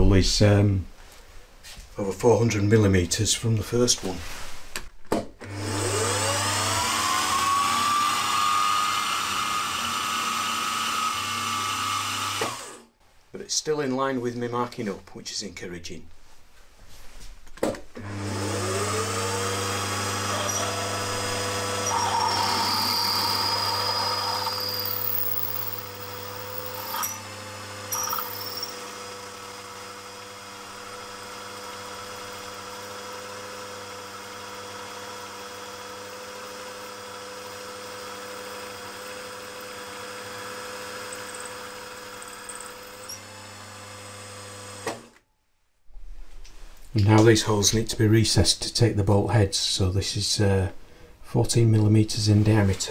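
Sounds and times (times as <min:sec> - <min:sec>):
drill boring through metal: 0:05.5 - 0:12.8, 0:18.1 - 0:45.0
milling machine motor whine: 0:05.5 - 0:12.8, 0:18.1 - 0:29.2.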